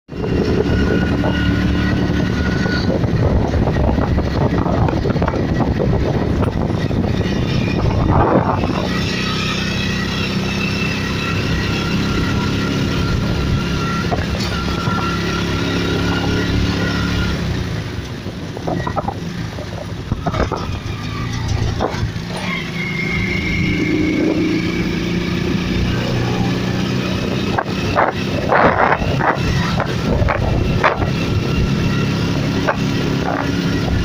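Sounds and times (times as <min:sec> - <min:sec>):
loud rush of train: 0:00.1 - 0:34.0
train wheels rumbling on rails: 0:00.1 - 0:34.0.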